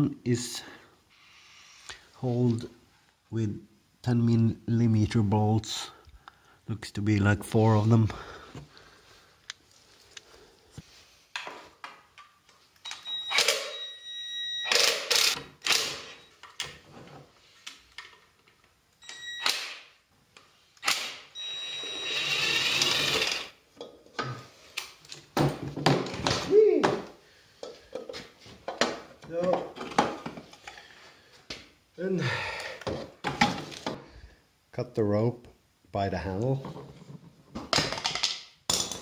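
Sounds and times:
short ringing tone: 21.4s - 22.3s.

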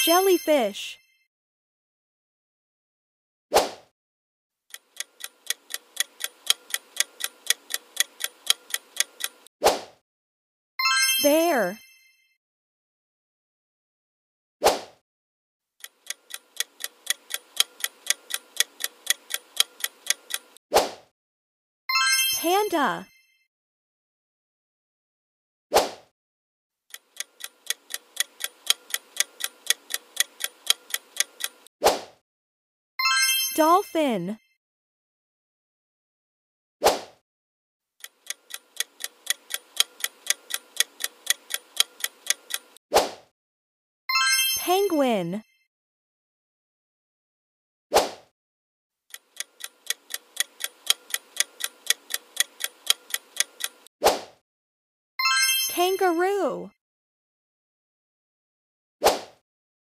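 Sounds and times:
countdown timer ticking: 4.7s - 9.5s, 15.8s - 20.6s, 26.9s - 31.7s, 38.0s - 42.8s, 49.1s - 53.9s.

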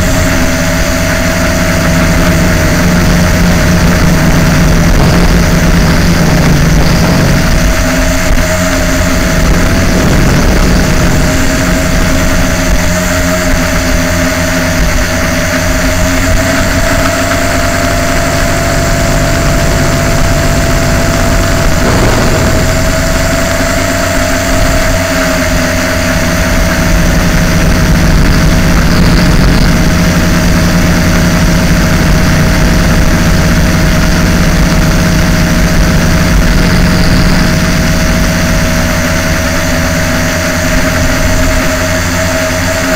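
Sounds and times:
quadcopter motors whining: 0.0s - 25.6s.

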